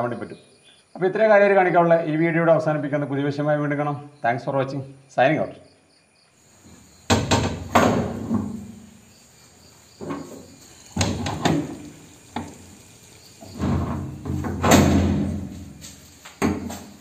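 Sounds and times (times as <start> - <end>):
metal door clanks and thuds: 7.1 - 8.7, 13.5 - 15.8.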